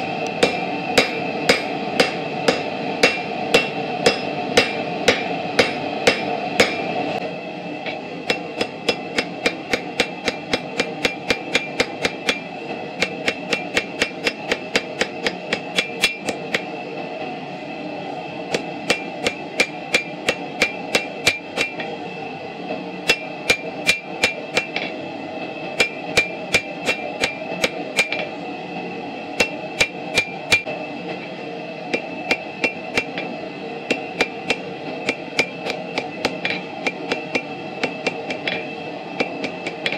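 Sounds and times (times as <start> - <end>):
hammer striking on anvil: 0.4 - 6.9, 7.8 - 16.7, 18.5 - 21.9, 23.1 - 25.0, 25.8 - 28.3, 29.4 - 30.7, 31.9 - 33.3, 33.9 - 39.9.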